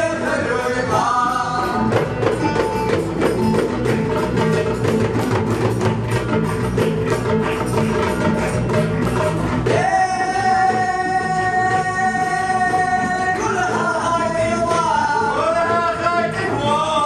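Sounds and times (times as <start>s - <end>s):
electric bass: 0.0s - 17.0s
oud: 0.0s - 17.0s
frame drum beating: 0.9s - 10.5s
person singing: 9.7s - 17.0s.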